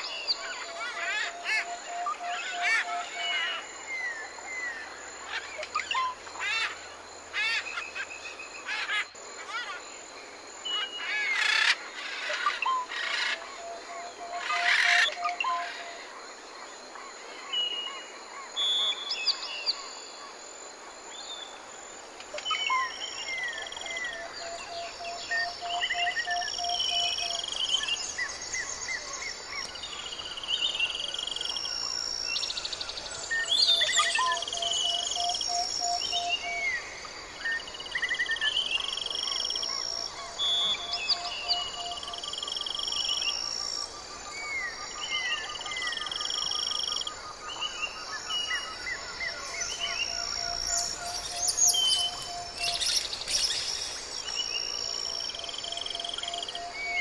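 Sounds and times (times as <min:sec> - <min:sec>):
background hiss: 0:00.0 - 0:57.0
birds whistling: 0:48.4 - 0:54.0.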